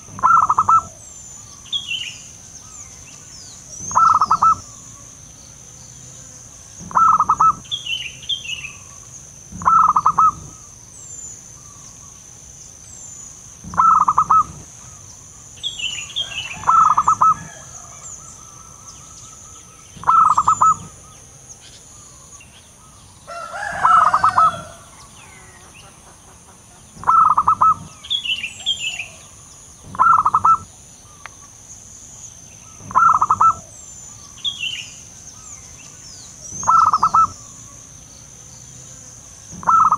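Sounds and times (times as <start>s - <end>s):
dove cooing: 0.0s - 1.1s, 3.7s - 4.8s, 6.8s - 7.7s, 9.5s - 10.7s, 13.6s - 15.0s, 16.2s - 18.7s, 20.0s - 21.1s, 23.3s - 25.5s, 27.0s - 30.7s, 32.8s - 33.8s, 36.4s - 37.5s, 39.5s - 39.9s
birds chirping: 0.0s - 39.9s.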